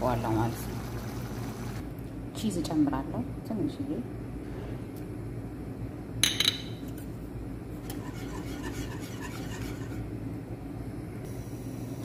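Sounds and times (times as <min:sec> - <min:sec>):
whisk scraping metal pot: 0:07.8 - 0:10.1.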